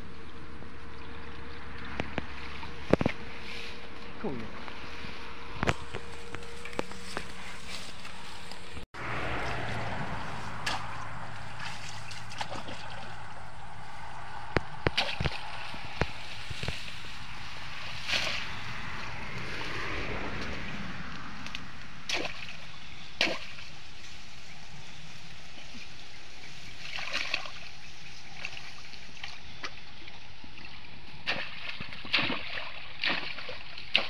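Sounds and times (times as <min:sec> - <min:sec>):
muddy water sloshing: 0:00.0 - 0:34.0
steady outdoor hiss: 0:00.0 - 0:34.0
short water splashes: 0:09.2 - 0:24.0, 0:25.7 - 0:34.0.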